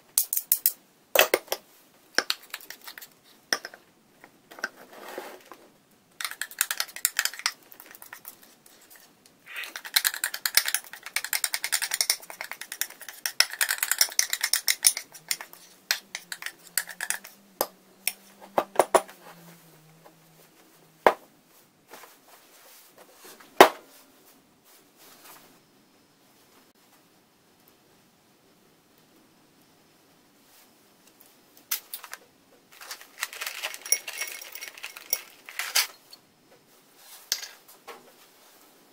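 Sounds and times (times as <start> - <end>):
metal spoon scraping ceramic bowl: 10.5 - 17.4.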